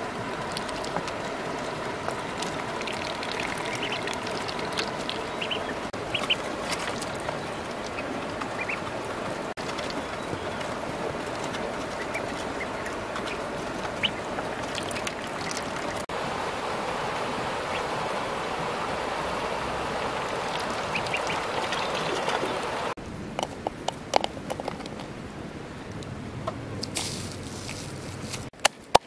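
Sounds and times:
ducklings peeping: 0.0s - 16.0s, 20.2s - 22.9s.

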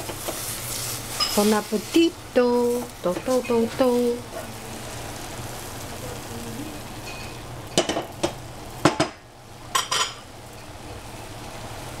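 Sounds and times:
utensil clinking on cookware: 9.7s - 10.2s.

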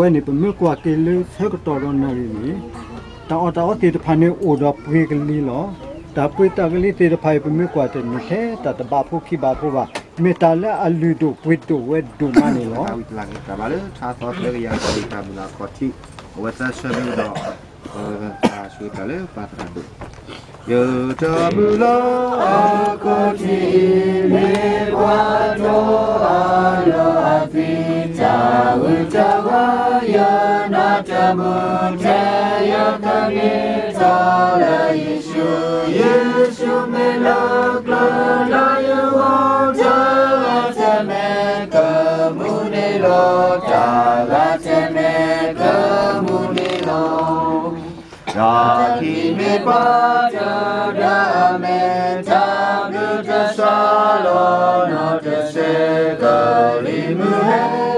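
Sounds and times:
group singing in unison: 20.7s - 57.9s.

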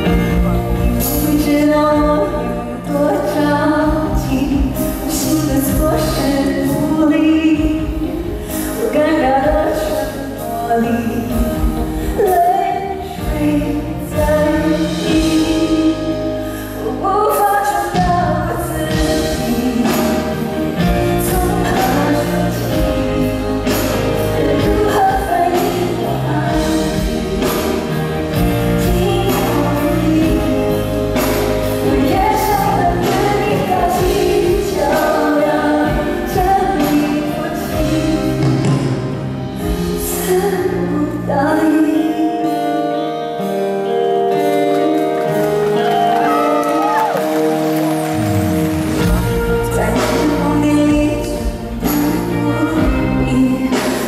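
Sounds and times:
band with drum beat: 0.0s - 2.9s, 17.7s - 40.3s, 45.2s - 54.0s
woman singing: 0.0s - 47.4s, 48.8s - 54.0s.

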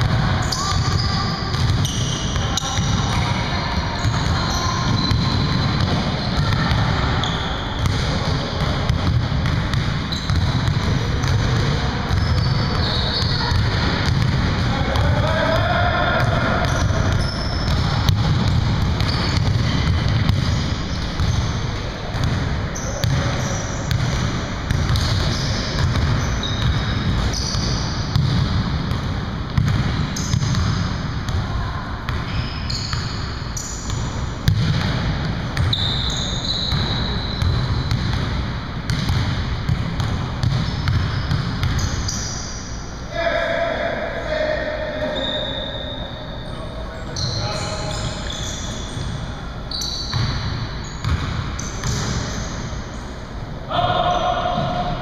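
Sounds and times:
basketballs bouncing on hardwood: 0.0s - 3.4s, 4.0s - 21.5s, 22.1s - 31.4s, 33.9s - 35.9s, 36.5s - 42.1s, 50.1s - 52.3s
sneaker squeaks: 0.0s - 14.4s, 15.0s - 28.5s, 29.6s - 30.9s, 32.1s - 34.9s, 35.6s - 38.3s, 40.4s - 43.0s, 44.9s - 53.2s
players' voices: 0.0s - 27.0s, 43.1s - 49.7s, 53.6s - 55.0s.

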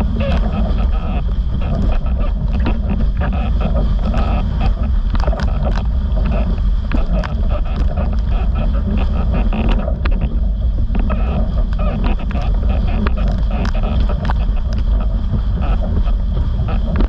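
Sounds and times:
board slapping water: 0.0s - 17.0s
water rushing under board: 0.0s - 17.0s
wind buffeting microphone: 0.0s - 17.0s.

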